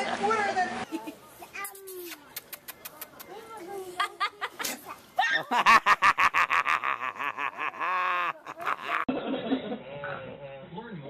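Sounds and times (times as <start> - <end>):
woman laughing hard: 5.2 - 9.6.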